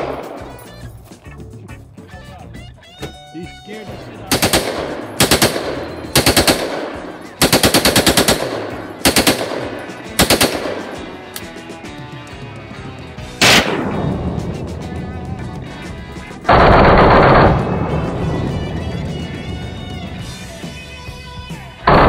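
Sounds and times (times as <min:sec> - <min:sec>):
automatic gunfire bursts: 0:04.3 - 0:11.3, 0:13.4 - 0:13.9, 0:16.5 - 0:17.8
single gunshot: 0:13.4 - 0:14.2.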